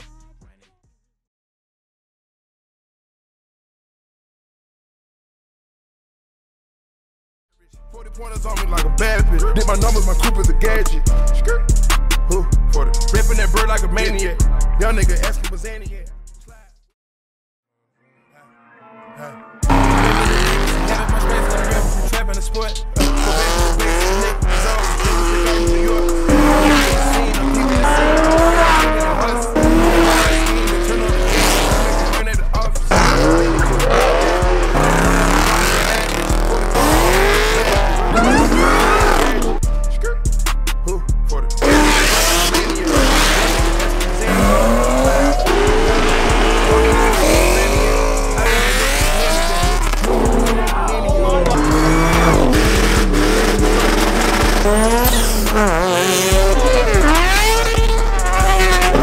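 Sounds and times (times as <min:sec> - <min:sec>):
hip-hop music with heavy bass: 0:00.0 - 0:01.0, 0:07.6 - 0:16.9, 0:19.1 - 0:59.0
tires squealing: 0:19.2 - 0:39.6, 0:41.6 - 0:59.0
car engines revving: 0:19.6 - 0:39.7, 0:40.9 - 0:59.0
tyre squeal: 0:36.8 - 0:39.6, 0:51.9 - 0:59.0.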